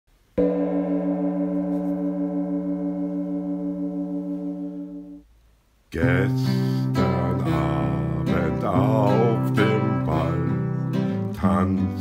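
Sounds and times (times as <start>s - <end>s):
metal percussion ringing tone: 0.4s - 5.2s.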